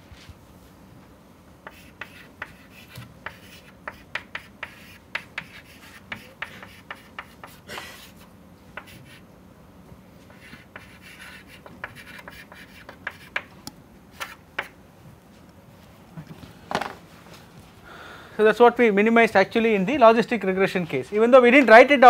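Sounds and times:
chalk writing on chalkboard: 1.6 - 9.2, 10.2 - 13.5, 14.1 - 14.8.

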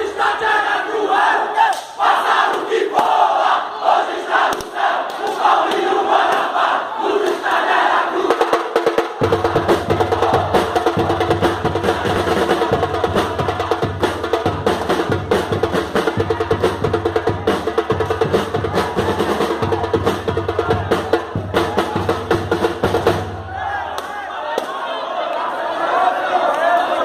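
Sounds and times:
drum band playing samba rhythm: 7.6 - 23.5.

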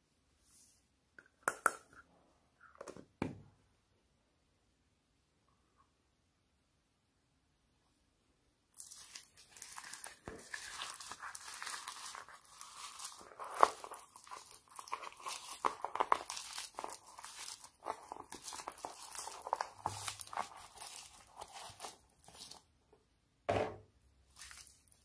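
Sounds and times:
foam-bead slime crackling: 8.8 - 22.7, 24.2 - 25.0.

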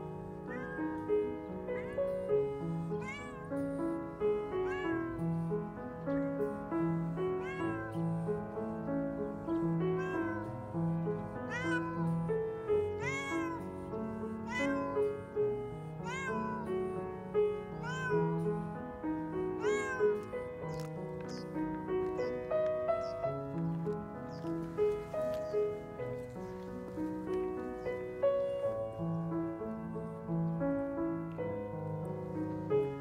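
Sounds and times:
soft piano music: 0.0 - 33.0
cat meowing: 0.4 - 5.4, 7.0 - 8.3, 9.8 - 10.6, 11.2 - 15.3, 16.0 - 18.7, 19.4 - 23.2, 24.3 - 26.7.

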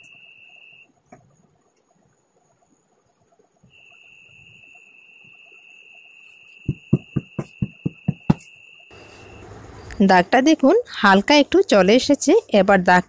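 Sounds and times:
faint high whine: 0.0 - 11.4
hands patting fabric: 6.7 - 8.4.

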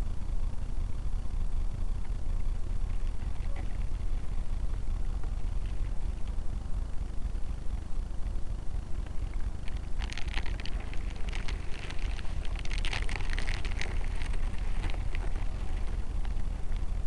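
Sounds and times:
crackling rustling patter: 0.0 - 17.0.

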